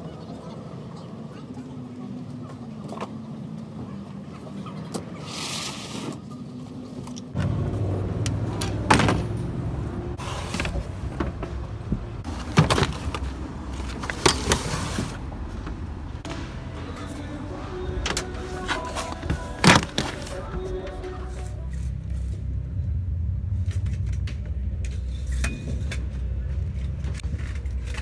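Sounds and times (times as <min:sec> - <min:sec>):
low rumble: 0:21.8 - 0:28.0.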